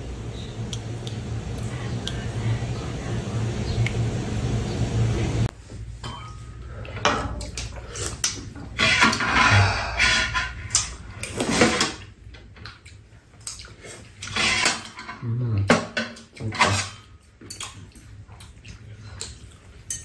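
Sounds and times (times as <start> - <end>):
spoons clinking and scraping dishes: 6.0 - 12.0, 19.1 - 20.0
chewing and slurping: 12.5 - 14.4, 17.4 - 19.9.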